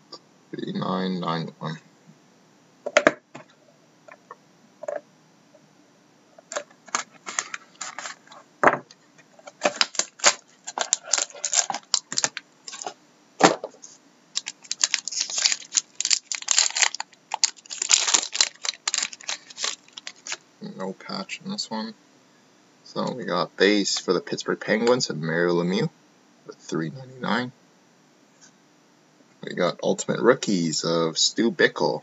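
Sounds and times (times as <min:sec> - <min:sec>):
plastic wrap crinkling and tearing: 0:06.5 - 0:08.4, 0:09.5 - 0:13.0, 0:14.4 - 0:20.4.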